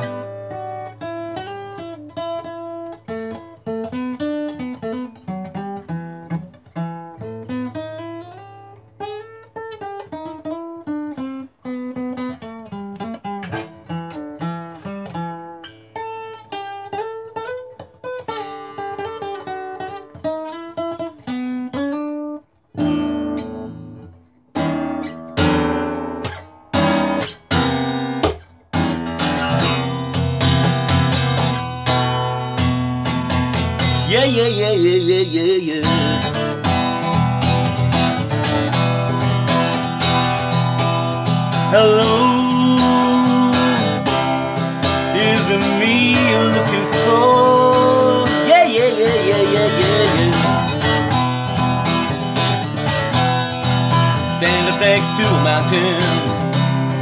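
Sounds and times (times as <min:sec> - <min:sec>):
acoustic guitar playing: 0:00.0 - 0:57.0.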